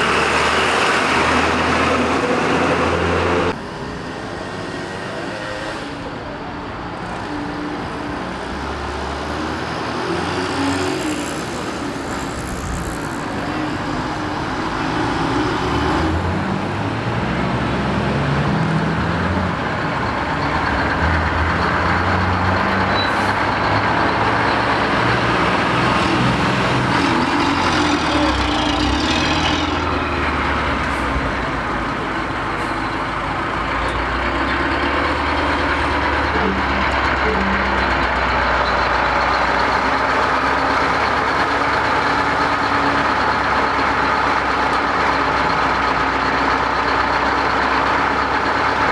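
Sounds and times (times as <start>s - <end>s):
truck engines running: 0.0s - 48.9s.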